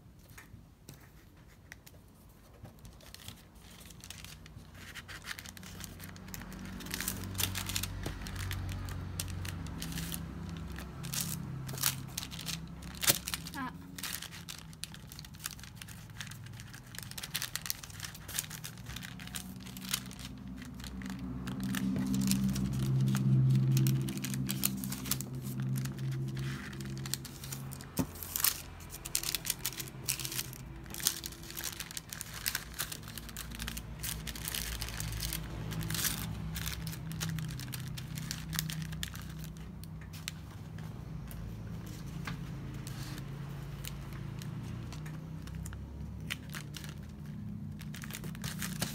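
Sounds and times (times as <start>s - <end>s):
wrapping paper crinkling: 1.1s - 48.9s
low hum: 16.4s - 45.1s.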